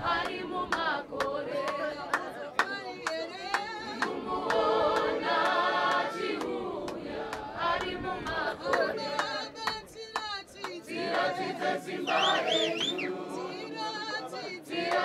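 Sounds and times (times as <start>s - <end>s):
crowd singing a hymn: 0.0s - 15.0s
sharp handclaps: 0.2s - 11.3s.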